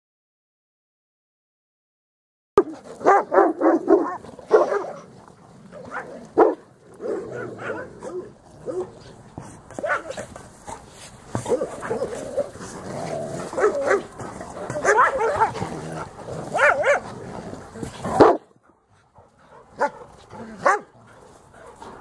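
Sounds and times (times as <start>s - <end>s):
dogs barking: 2.6s - 5.1s, 5.8s - 9.0s, 9.7s - 10.3s, 11.4s - 17.1s, 18.1s - 18.6s, 19.4s - 22.0s.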